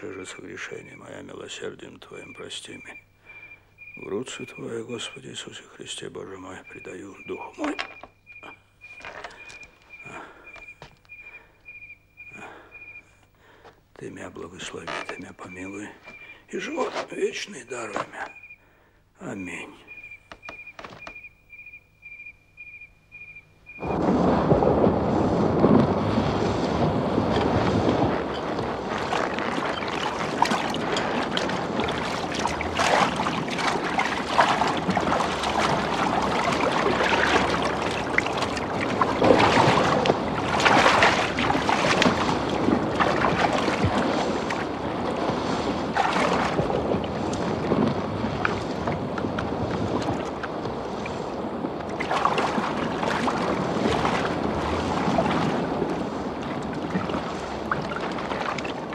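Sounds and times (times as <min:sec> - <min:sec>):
loud rushing river water: 0:23.8 - 0:58.9.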